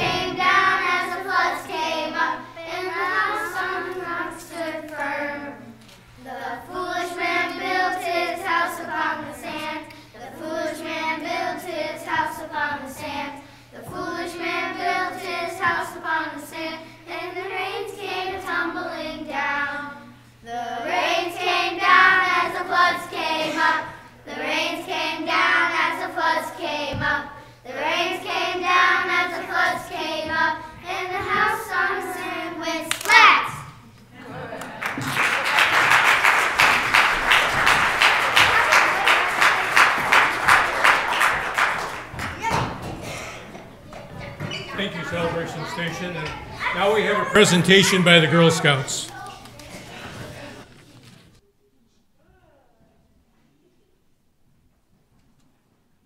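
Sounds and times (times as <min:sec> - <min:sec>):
children singing together: 0:00.0 - 0:33.8.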